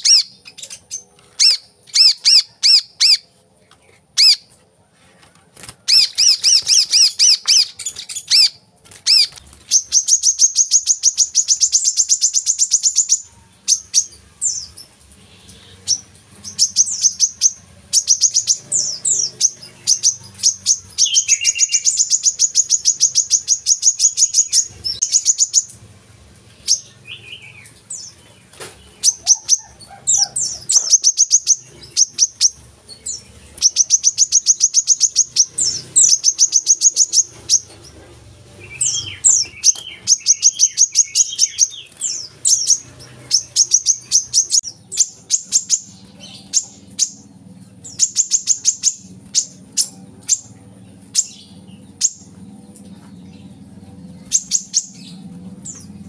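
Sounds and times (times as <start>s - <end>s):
bird singing high chattering song: 0.0s - 4.6s, 5.8s - 56.0s.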